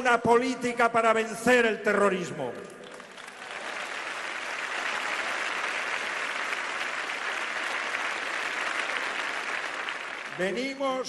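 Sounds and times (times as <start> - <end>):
crowd applauding: 2.7 - 10.8.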